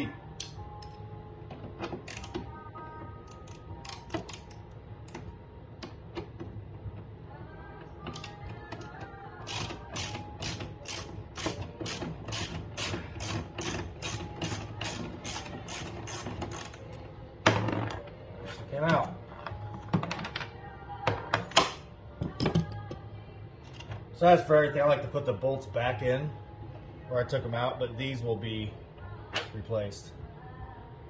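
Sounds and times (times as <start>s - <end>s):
ratchet wrench clicking: 2.1s - 2.3s, 9.4s - 16.8s.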